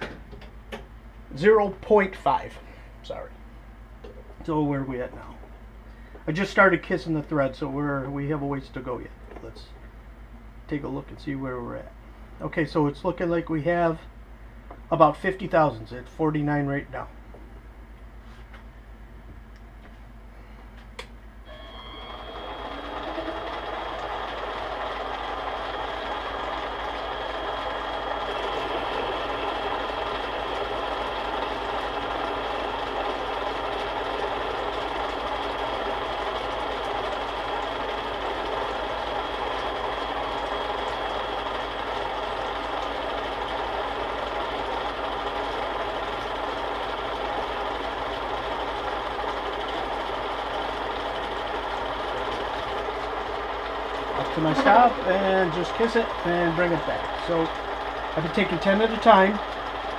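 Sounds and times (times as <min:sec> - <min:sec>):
metal lathe cutting: 0:21.5 - 0:59.9.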